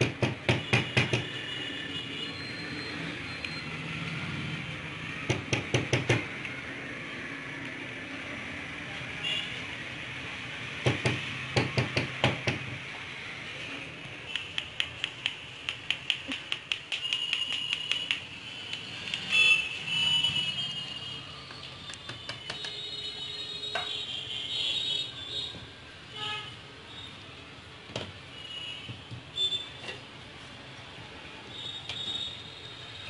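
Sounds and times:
even ticking taps: 0:14.3 - 0:19.3.

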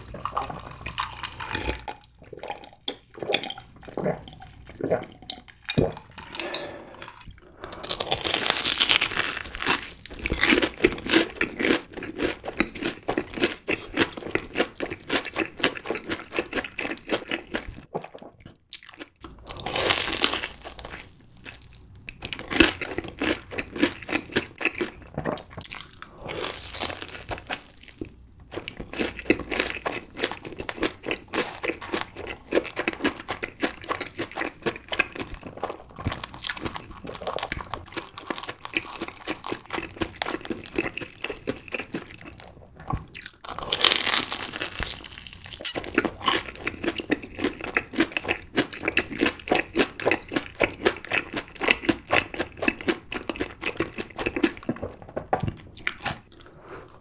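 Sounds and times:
crunchy biting and chewing: 0:07.7 - 0:17.6, 0:28.8 - 0:55.0.

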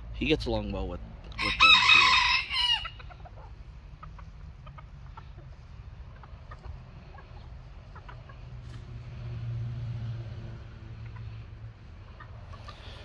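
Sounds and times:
chickens clucking softly: 0:02.8 - 0:09.2, 0:10.8 - 0:13.0.

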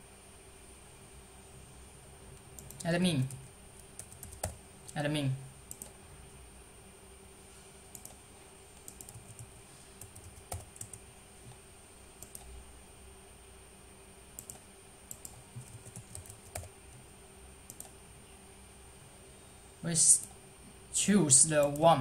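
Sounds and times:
computer keyboard typing: 0:02.6 - 0:04.6, 0:05.7 - 0:05.9, 0:07.9 - 0:08.2, 0:08.8 - 0:11.0, 0:12.2 - 0:12.5, 0:14.4 - 0:16.7, 0:17.7 - 0:17.9.

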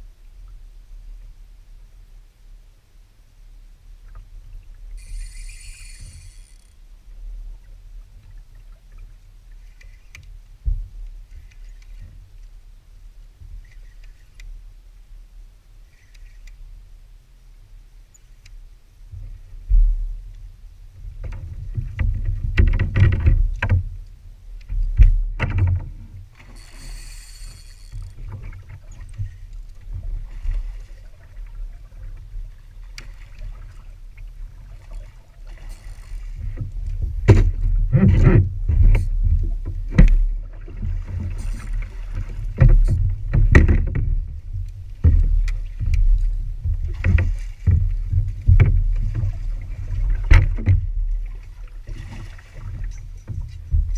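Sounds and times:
water splashing around a kayak: 0:03.6 - 0:17.9, 0:18.6 - 0:53.9
knocks on kayak hull: 0:37.2 - 0:38.4, 0:42.6 - 0:44.1.

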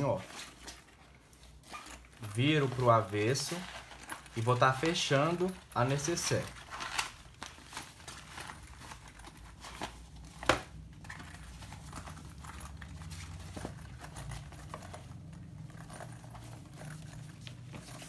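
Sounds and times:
fabric rustling and crinkling: 0:00.0 - 0:18.0
faint low hum: 0:07.7 - 0:18.0.

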